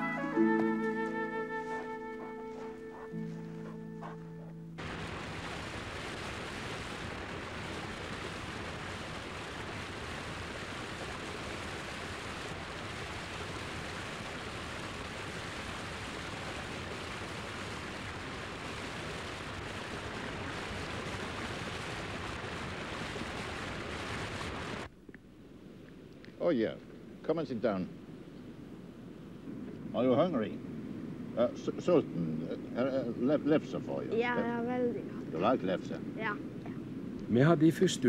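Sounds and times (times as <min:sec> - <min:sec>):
waterfall rushing over rocks: 0:04.8 - 0:24.9.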